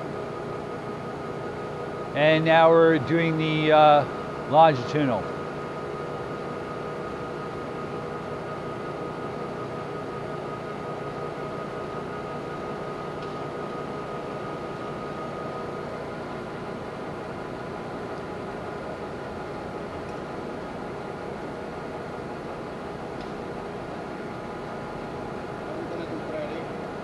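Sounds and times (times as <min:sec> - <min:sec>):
lathe mechanical hum: 0:00.0 - 0:27.0.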